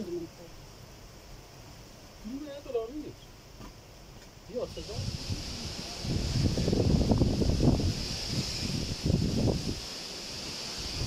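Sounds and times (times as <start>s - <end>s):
steady high hiss: 0.0s - 11.0s
wind buffeting microphone: 4.7s - 11.0s.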